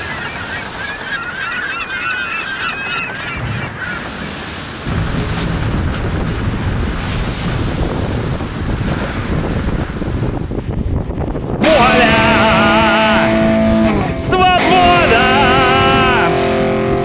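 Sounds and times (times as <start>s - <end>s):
flock of birds calling: 0.0s - 4.3s
water noise: 0.0s - 17.0s
wind: 0.0s - 17.0s.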